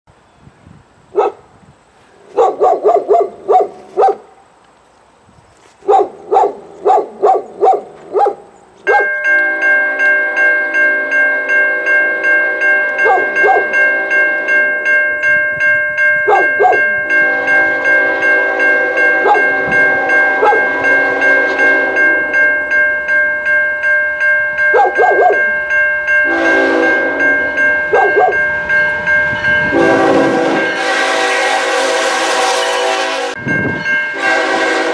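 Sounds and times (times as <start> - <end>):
dog barking: 1.2 - 1.4, 2.3 - 4.3, 5.8 - 9.1, 13.0 - 13.7, 16.3 - 16.8, 20.4 - 20.7, 24.7 - 25.4, 27.9 - 28.4
locomotive air horn chord: 8.9 - 14.9, 16.3 - 22.7, 26.2 - 28.4, 29.3 - 34.9.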